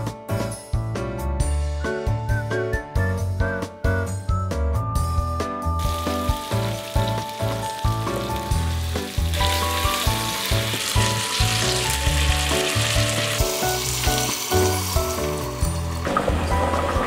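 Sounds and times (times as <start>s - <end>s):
food sizzling in oil: 5.8s - 17.0s.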